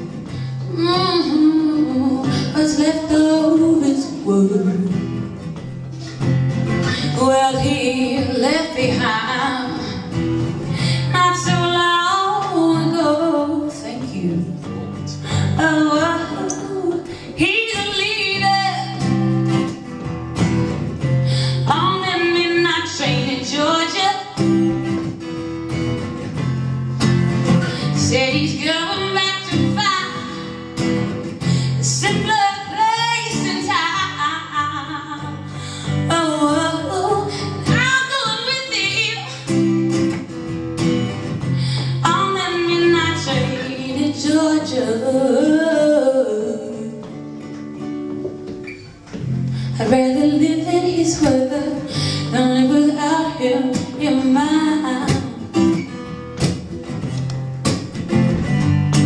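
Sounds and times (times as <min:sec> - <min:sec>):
acoustic guitar strumming: 0:00.0 - 0:59.0
woman singing: 0:00.1 - 0:05.4, 0:06.8 - 0:19.8, 0:21.5 - 0:25.2, 0:27.6 - 0:30.8, 0:31.4 - 0:40.3, 0:41.7 - 0:47.2, 0:49.7 - 0:55.8.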